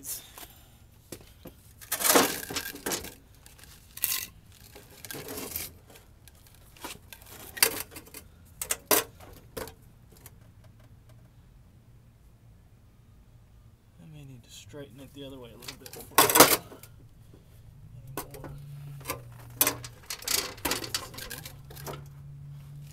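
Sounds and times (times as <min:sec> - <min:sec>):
metal clanks and scrapes: 0:01.8 - 0:10.4, 0:15.6 - 0:16.9, 0:18.1 - 0:22.2.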